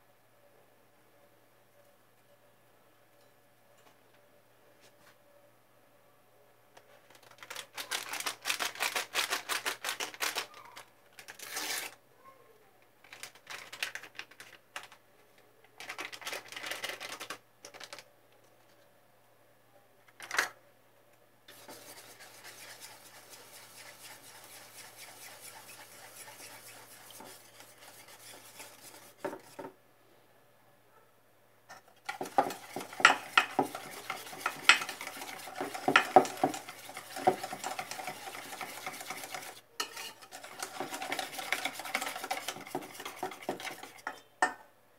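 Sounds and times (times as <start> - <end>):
flour rubbed by hand rustling: 21.5 - 29.6, 32.1 - 39.6, 40.3 - 44.0
utensil clinking against metal bowl: 32.1 - 44.6.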